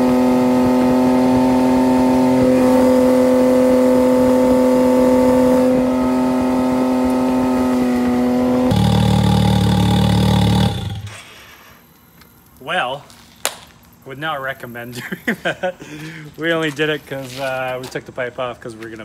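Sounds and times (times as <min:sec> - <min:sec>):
loud engine running: 0:00.0 - 0:11.2.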